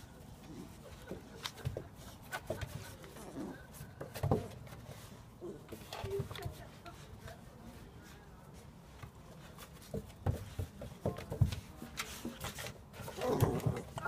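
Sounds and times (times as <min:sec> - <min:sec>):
dogs scuffling: 0:00.0 - 0:14.0
paws knocking on wooden boards: 0:09.7 - 0:14.0.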